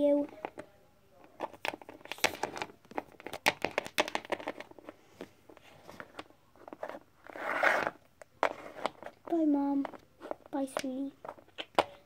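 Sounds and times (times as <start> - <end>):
rustling scrape: 4.7 - 9.2.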